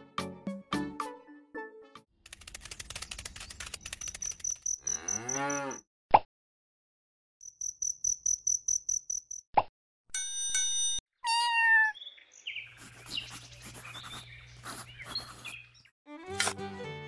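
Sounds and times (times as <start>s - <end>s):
quick ticking: 2.3s - 4.9s
crickets chirping: 3.9s - 5.7s, 7.4s - 9.4s
cow mooing: 4.8s - 5.8s.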